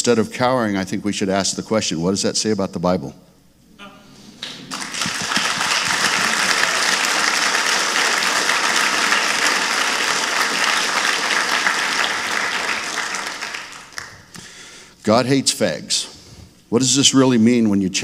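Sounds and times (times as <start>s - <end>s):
audience applauding: 4.4s - 14.3s.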